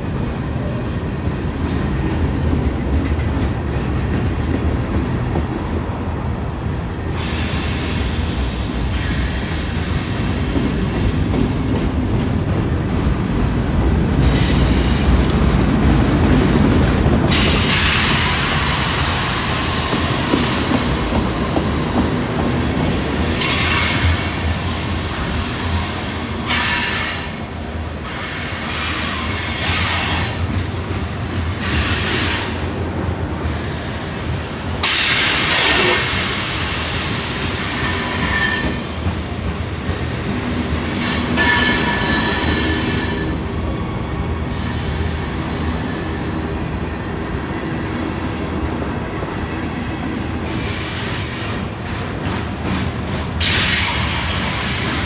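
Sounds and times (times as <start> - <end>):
freight train rumbling past: 0.0 - 55.0
train wheels squealing: 7.1 - 12.0, 23.1 - 30.5, 33.4 - 47.2, 50.4 - 51.8, 53.4 - 55.0.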